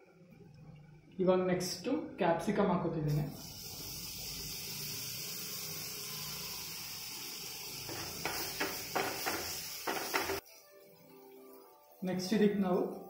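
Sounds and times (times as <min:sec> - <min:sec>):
masala sizzling in a frying pan: 0:03.1 - 0:13.0
wooden spatula scraping a pan: 0:07.9 - 0:10.4.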